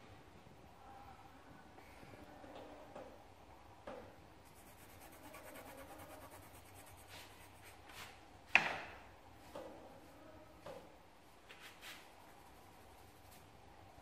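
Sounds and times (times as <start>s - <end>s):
rubbing and handling on tabletop: 4.4s - 8.2s, 11.4s - 13.5s.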